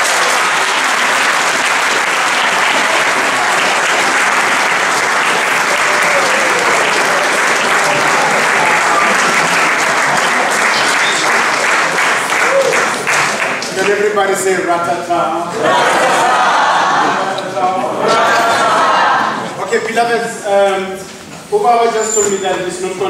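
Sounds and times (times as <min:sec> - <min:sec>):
audience applauding: 0:00.0 - 0:14.5.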